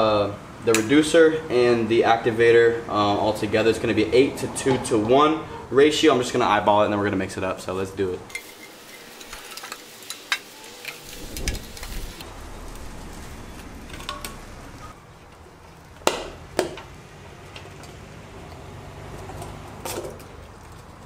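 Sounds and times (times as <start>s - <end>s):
wind rumble on microphone: 11.0s - 15.0s.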